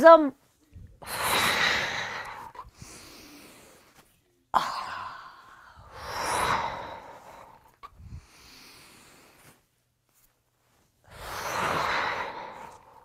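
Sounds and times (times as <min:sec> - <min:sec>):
woman breathing hard: 0:00.8 - 0:04.0, 0:04.6 - 0:09.6, 0:11.0 - 0:13.0.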